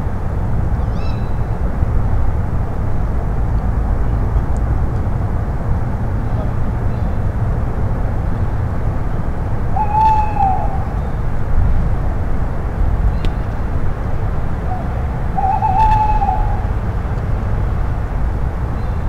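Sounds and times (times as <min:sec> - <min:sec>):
owl hooting: 0:00.8 - 0:01.4, 0:09.7 - 0:11.2, 0:14.6 - 0:16.8.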